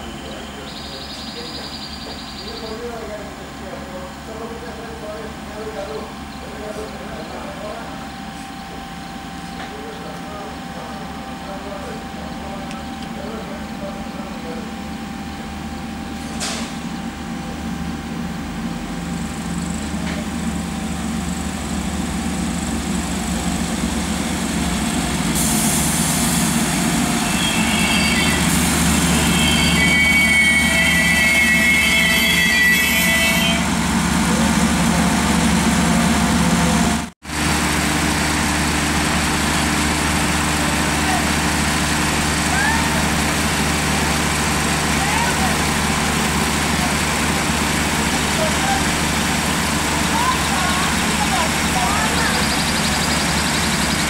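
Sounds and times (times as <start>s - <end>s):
railcar engine running: 0.0s - 54.0s
wheels squealing on rails: 24.2s - 34.6s, 44.7s - 54.0s.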